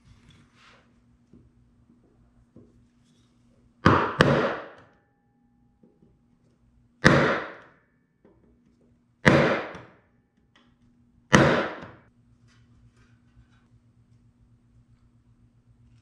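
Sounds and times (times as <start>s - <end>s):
mallet striking chisel: 3.9s - 4.9s, 7.0s - 7.7s, 9.2s - 9.9s, 11.3s - 12.0s.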